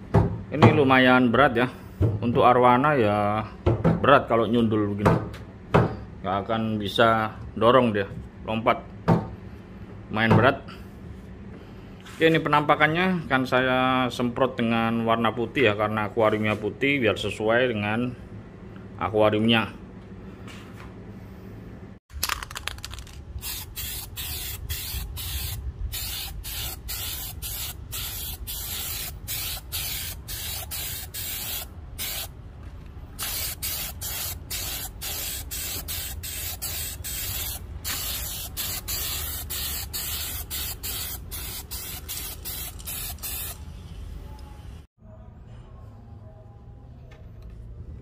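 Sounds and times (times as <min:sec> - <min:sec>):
spray paint hissing in spurts: 0:22.2 - 0:32.3, 0:33.2 - 0:43.6.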